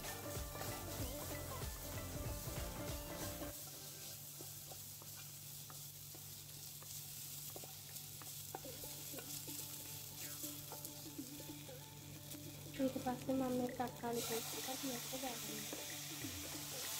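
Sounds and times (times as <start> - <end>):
food sizzling in oil: 0.0 - 16.9
spatula tapping and scraping pan: 4.4 - 9.7.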